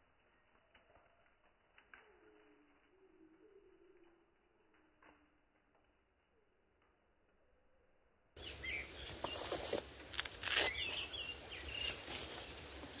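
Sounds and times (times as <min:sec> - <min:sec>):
birds chirping: 0:08.4 - 0:13.0.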